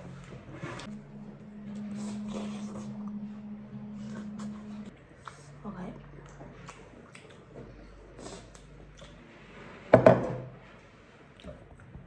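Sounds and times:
slurping noodle soup: 0:00.0 - 0:05.6, 0:06.6 - 0:09.9
chewing: 0:00.1 - 0:09.5.

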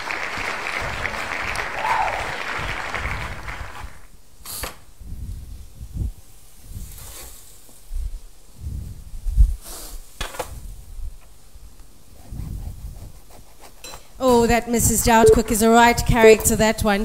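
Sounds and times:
applause: 0:00.0 - 0:04.1.

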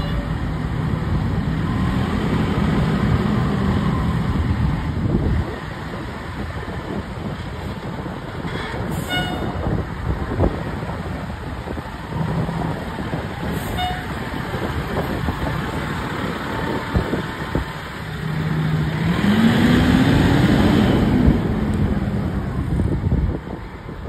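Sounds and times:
fire engine diesel engine revving: 0:00.3 - 0:05.8, 0:11.6 - 0:23.0.

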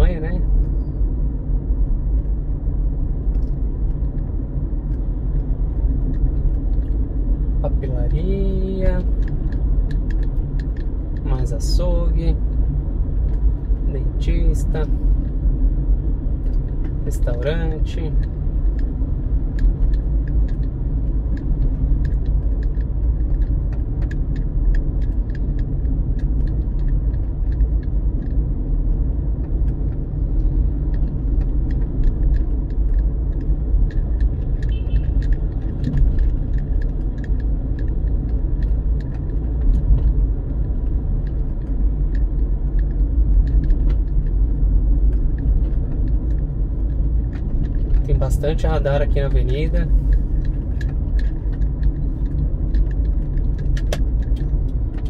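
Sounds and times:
road and engine rumble: 0:00.0 - 0:55.0
small rattling clicks: 0:19.5 - 0:28.4, 0:29.4 - 0:55.0.

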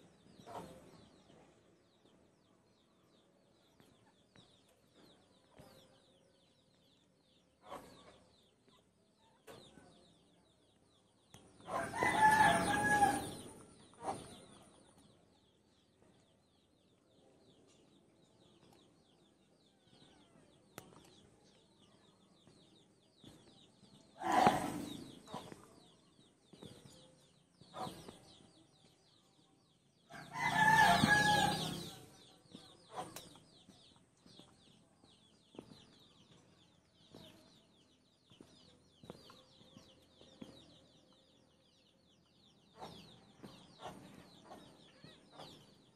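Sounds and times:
rooster crowing: 0:11.8 - 0:13.4, 0:30.2 - 0:31.8.

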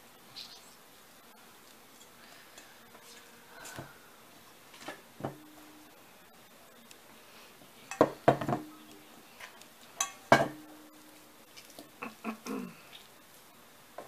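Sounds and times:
metal bowl knocking and ringing: 0:07.9 - 0:08.9, 0:10.0 - 0:11.0.

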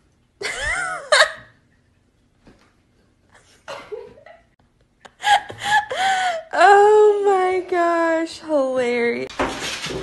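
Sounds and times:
person laughing: 0:00.4 - 0:01.5.

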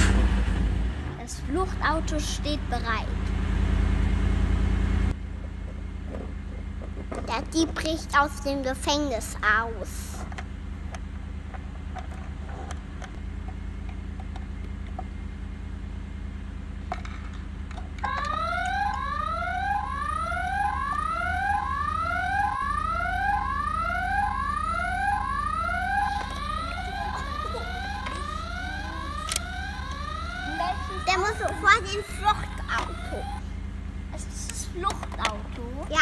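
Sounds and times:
low steady hum: 0:01.1 - 0:36.0
toy alarm rising electronic whoops: 0:18.0 - 0:33.5.

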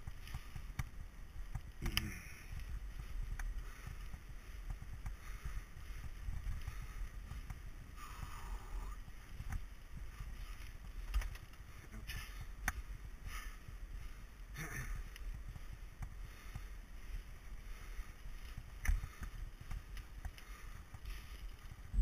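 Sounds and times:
bike tyres rumbling on gravel: 0:00.0 - 0:22.0
wind: 0:00.0 - 0:22.0.

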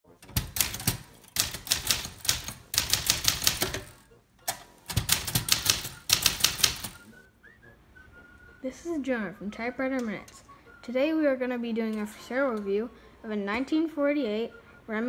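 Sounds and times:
typewriter keys clicking: 0:00.2 - 0:07.1.

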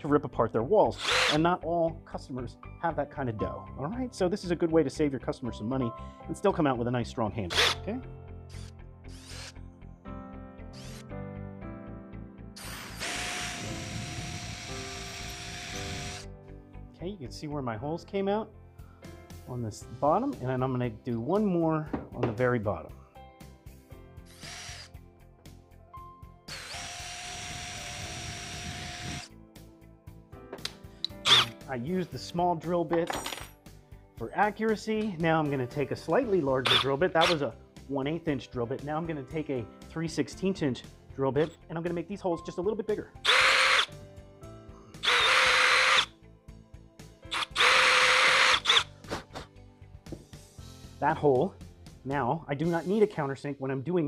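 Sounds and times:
background music: 0:00.0 - 0:54.0
cordless drill boring into wood: 0:01.0 - 0:01.4, 0:07.5 - 0:07.8, 0:08.5 - 0:09.6, 0:10.8 - 0:11.0, 0:12.6 - 0:16.3, 0:24.3 - 0:24.9, 0:26.5 - 0:29.3, 0:31.2 - 0:31.5, 0:36.6 - 0:37.4, 0:43.2 - 0:43.9, 0:45.0 - 0:46.1, 0:47.3 - 0:48.9.

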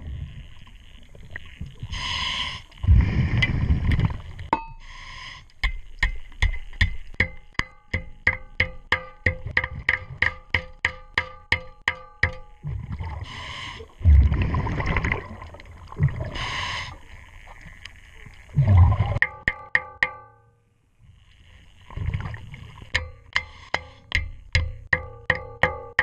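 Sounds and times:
exhaled bubbles rumbling: 0:00.0 - 0:02.2, 0:02.8 - 0:04.5, 0:12.6 - 0:19.2, 0:21.7 - 0:23.0
scuba regulator inhalation hiss: 0:01.9 - 0:03.9, 0:04.8 - 0:05.6, 0:13.2 - 0:14.0, 0:16.2 - 0:17.2.

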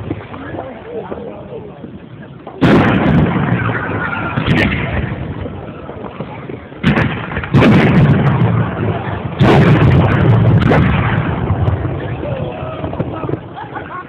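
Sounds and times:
rumbling echo: 0:00.0 - 0:14.0
firework shells bursting: 0:02.5 - 0:12.2.

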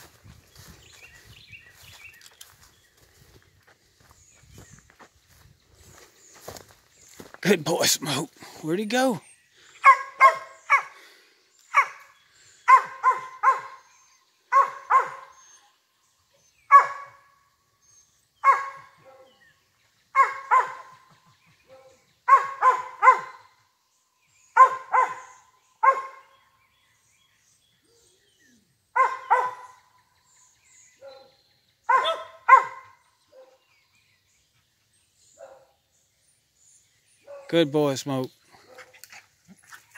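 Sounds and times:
dog barking: 0:09.8 - 0:11.0, 0:11.7 - 0:12.1, 0:12.7 - 0:13.9, 0:14.5 - 0:15.4, 0:16.7 - 0:17.2, 0:18.4 - 0:19.4, 0:20.2 - 0:21.0, 0:21.7 - 0:23.5, 0:24.6 - 0:26.3, 0:29.0 - 0:29.9, 0:31.0 - 0:33.6, 0:35.4 - 0:35.7, 0:37.2 - 0:37.5.

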